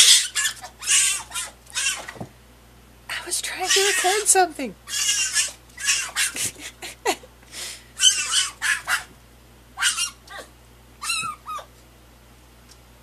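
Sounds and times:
fox high-pitched cries: 0.0s - 2.2s, 3.6s - 6.4s, 8.0s - 9.1s, 9.8s - 11.7s.

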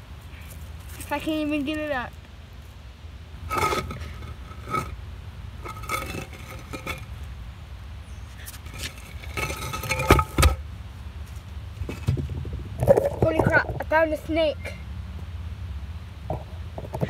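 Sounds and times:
heavy thumps: 3.5s - 4.9s, 5.6s - 7.1s, 8.6s - 10.6s, 11.8s - 14.0s
stone scraping on stone and gravel: 3.5s - 5.0s, 5.6s - 7.2s, 8.4s - 10.6s, 11.8s - 13.9s.

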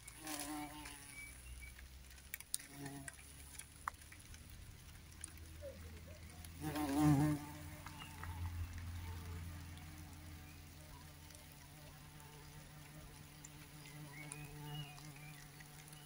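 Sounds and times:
bumblebee buzzing: 0.2s - 1.2s, 6.6s - 8.3s.

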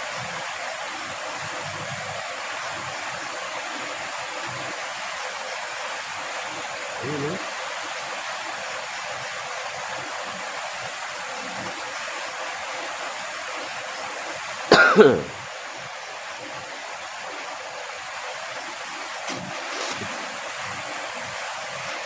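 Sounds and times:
river water rushing: 0.0s - 22.0s
person coughing: 14.7s - 15.4s.

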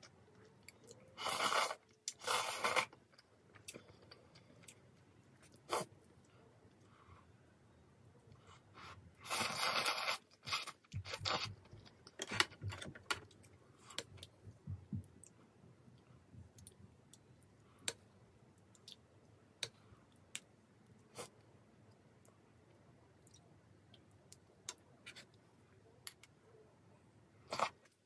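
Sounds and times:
noodles being slurped: 1.2s - 3.0s, 9.2s - 11.5s.

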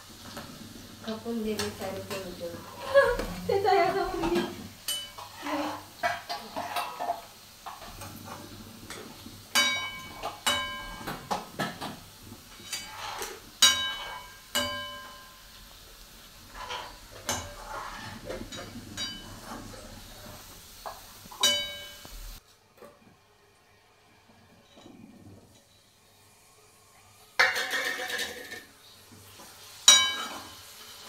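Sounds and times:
spoon scraping in metal pot: 1.5s - 11.9s, 12.5s - 15.2s, 16.5s - 22.1s
spoon clanking against pot: 4.2s - 8.0s, 8.9s - 15.4s, 16.5s - 19.8s, 20.8s - 22.1s, 29.8s - 30.6s.

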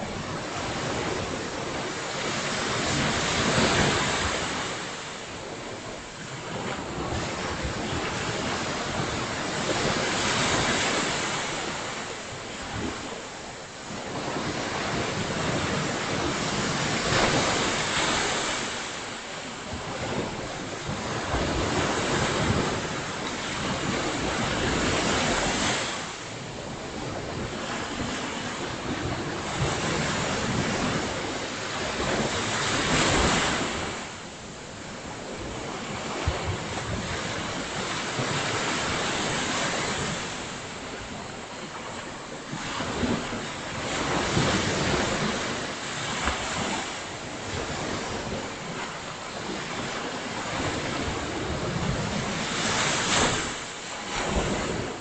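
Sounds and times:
surf breaking on beach: 0.0s - 55.0s
wind rumbling on microphone: 0.0s - 55.0s.

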